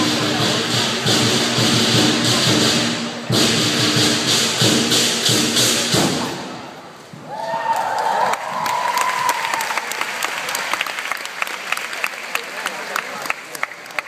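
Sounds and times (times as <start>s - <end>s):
crowd voices: 0.0s - 3.7s
big drum beating: 0.0s - 6.8s.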